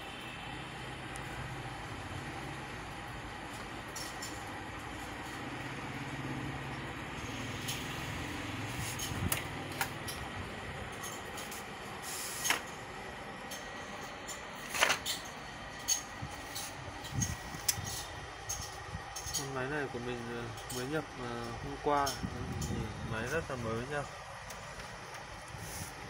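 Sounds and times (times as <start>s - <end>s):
printer humming: 0.0s - 26.0s.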